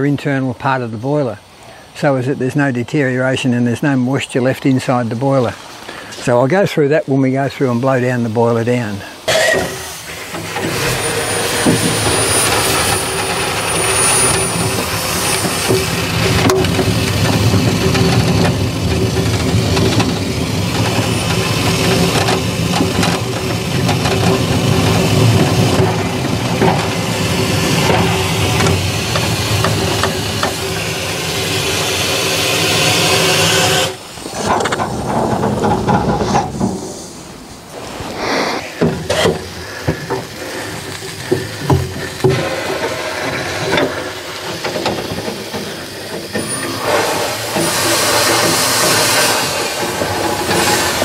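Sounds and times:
steam hissing: 0.0 - 51.0
metal knocks and clanks: 34.3 - 37.0.

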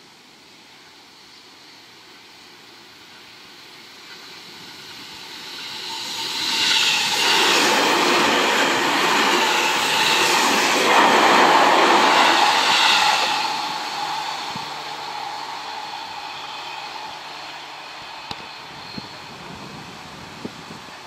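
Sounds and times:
electric train passing at speed: 0.0 - 21.0
train wheels beating: 4.0 - 19.6.

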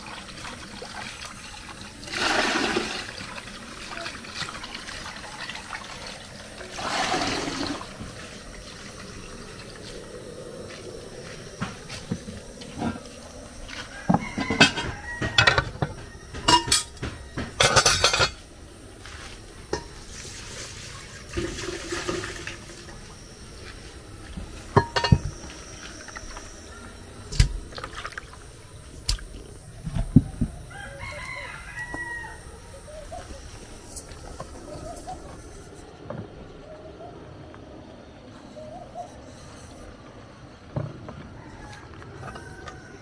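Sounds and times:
rooster crowing: 13.6 - 17.5, 30.3 - 33.0, 41.1 - 43.0.

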